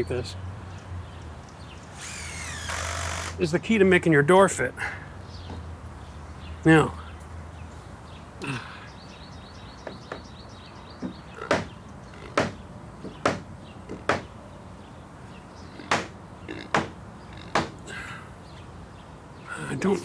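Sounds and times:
hammer knocking on wood: 9.8 - 10.3, 11.0 - 11.7, 12.4 - 14.3, 15.9 - 16.1, 16.7 - 17.8.

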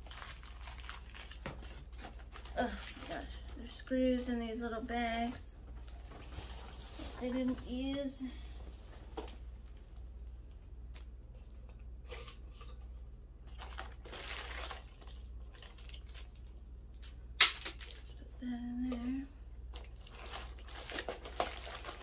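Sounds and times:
paper and plastic bags rustling: 0.0 - 9.8, 13.5 - 16.6, 19.7 - 22.0.

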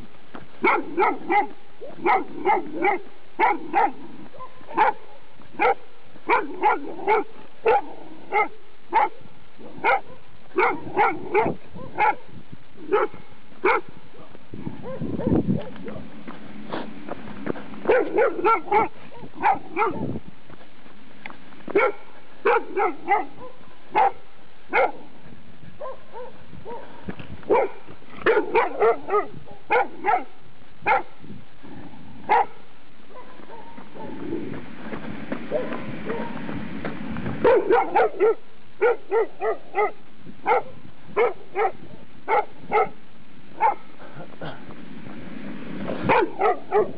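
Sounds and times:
dog barking: 0.6 - 12.3, 12.9 - 16.0, 17.8 - 20.2, 21.7 - 25.2, 25.8 - 31.2, 32.3 - 34.2, 35.5 - 36.4, 37.4 - 43.0, 43.6 - 43.9, 46.0 - 46.9.

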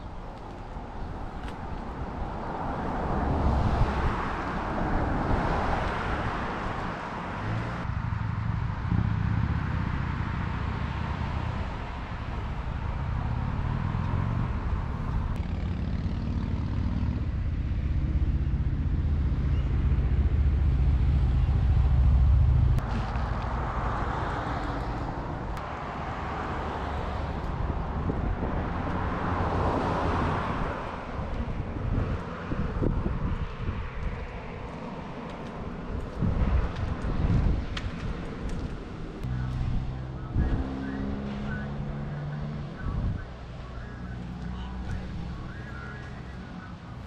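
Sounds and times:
vehicle engine drone: 0.0 - 47.0.

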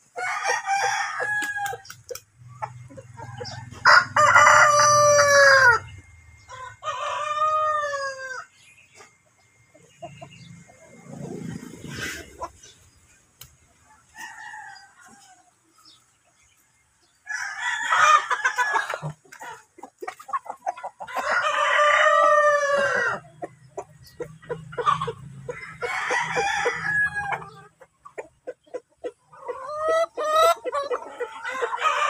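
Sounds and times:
roosters crowing: 0.0 - 8.7, 13.8 - 16.0, 17.1 - 19.6, 21.0 - 27.8, 29.4 - 32.0
hens clucking: 0.0 - 17.2, 17.8 - 32.0.

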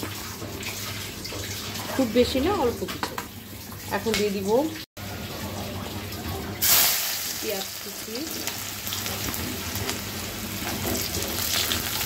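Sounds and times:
onions sizzling in hot oil: 6.6 - 12.0.

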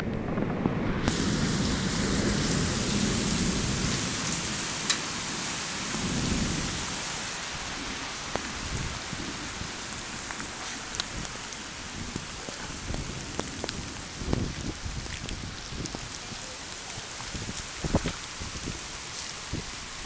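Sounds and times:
low rumble: 0.0 - 4.6
heavy rain pouring: 0.0 - 20.0.

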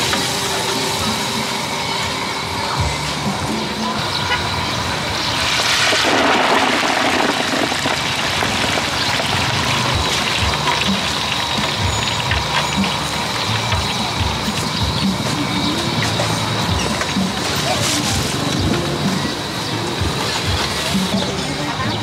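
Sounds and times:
oil sizzling and bubbling: 5.3 - 21.2.

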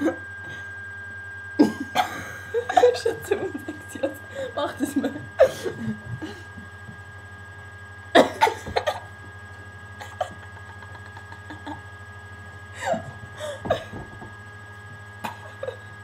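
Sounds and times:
low electrical hum: 0.0 - 16.0
women giggling and gasping: 10.0 - 11.8, 12.8 - 14.2.

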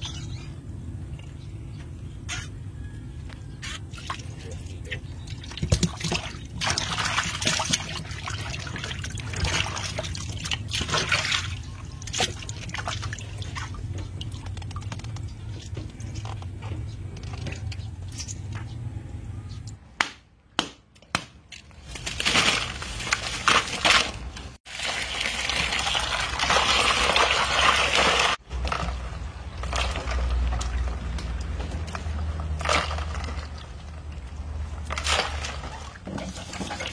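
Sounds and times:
water splashing and sloshing: 3.6 - 19.1, 21.4 - 36.9.

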